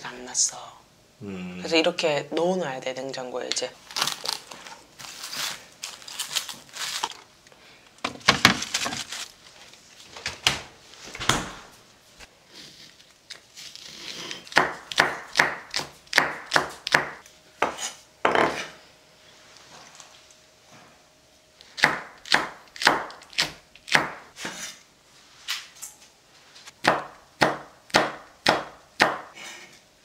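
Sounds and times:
cling film crinkling: 0:03.8 - 0:07.3, 0:08.2 - 0:10.1
knife chopping on wooden board: 0:14.5 - 0:18.7, 0:21.8 - 0:24.6, 0:26.8 - 0:29.3.

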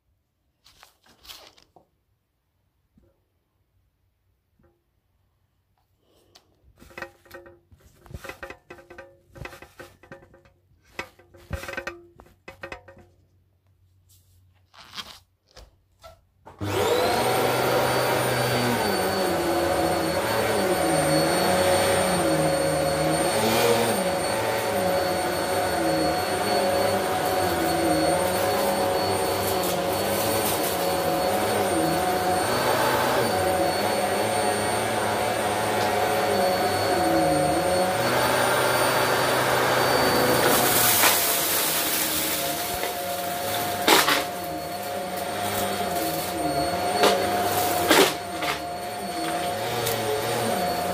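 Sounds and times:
vacuum cleaner running: 0:16.5 - 0:50.9.

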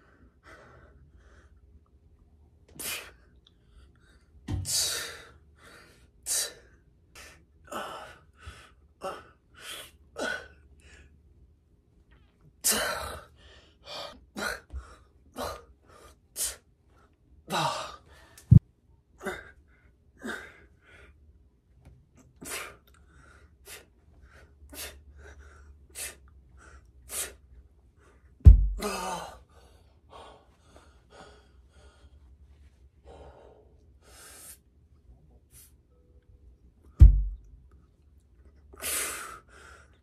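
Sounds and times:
man breathing forcefully: 0:04.6 - 0:11.1, 0:22.4 - 0:27.4, 0:28.0 - 0:32.2, 0:33.1 - 0:34.6
dull thumps: 0:28.4 - 0:28.9, 0:37.0 - 0:37.5.

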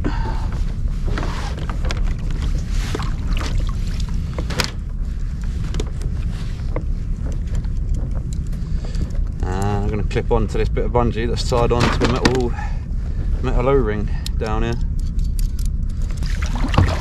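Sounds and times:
wind rumble on microphone: 0:00.0 - 0:17.0
rope knocking and scraping: 0:00.5 - 0:10.1.

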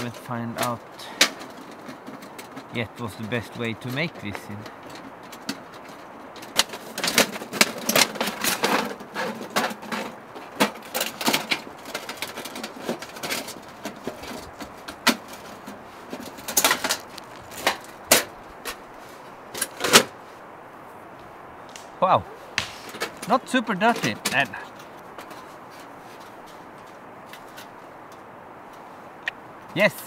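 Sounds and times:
sheet-metal panels clicking: 0:00.0 - 0:18.8.

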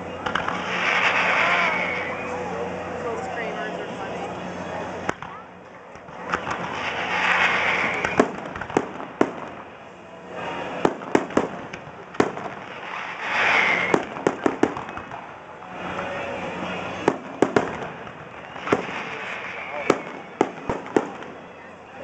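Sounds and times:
fireworks bangs and pops: 0:00.0 - 0:02.1, 0:05.0 - 0:21.6.

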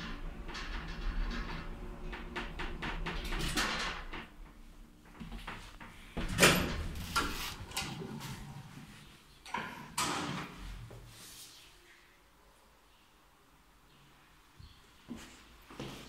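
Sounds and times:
metal door clacking: 0:00.0 - 0:08.2, 0:09.5 - 0:10.6.

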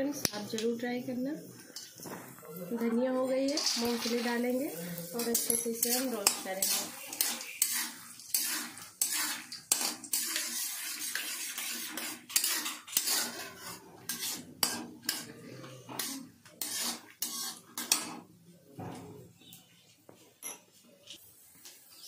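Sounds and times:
metal spatula scraping a metal pan: 0:03.6 - 0:18.2.

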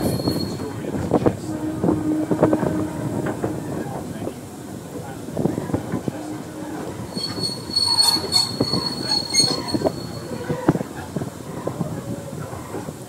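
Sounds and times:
high wheel squeal: 0:00.0 - 0:00.9, 0:06.2 - 0:10.8
train wheels clanking and knocking: 0:00.0 - 0:12.9.

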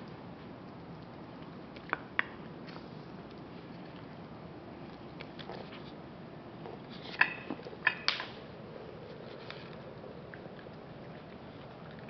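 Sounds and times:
faint chewing: 0:00.0 - 0:04.2, 0:04.8 - 0:06.0, 0:08.7 - 0:12.0
dog eating dry kibble: 0:08.9 - 0:12.0.

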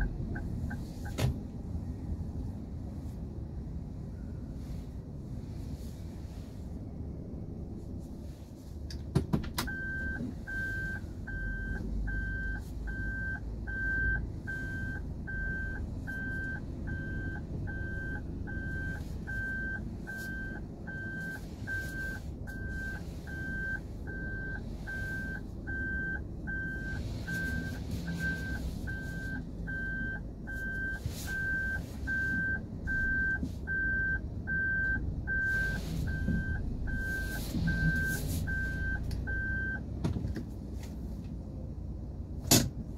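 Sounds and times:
low hum of car creeping: 0:00.0 - 0:42.9.

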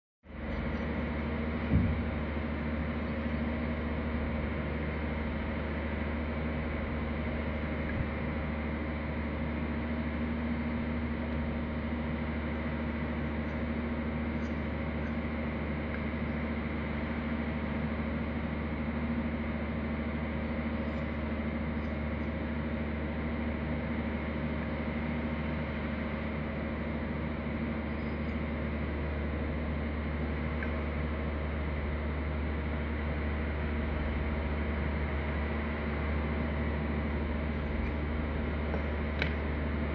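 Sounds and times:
low hum with hiss: 0:00.3 - 0:39.9.

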